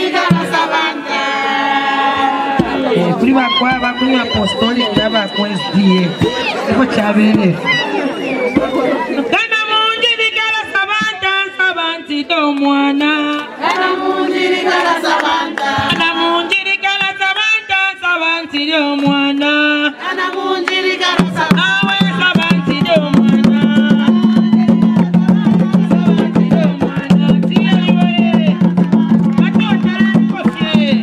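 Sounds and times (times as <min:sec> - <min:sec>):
women singing: 0:00.0 - 0:03.3, 0:09.6 - 0:31.0
fast hand drumming: 0:02.5 - 0:07.7, 0:21.2 - 0:31.0.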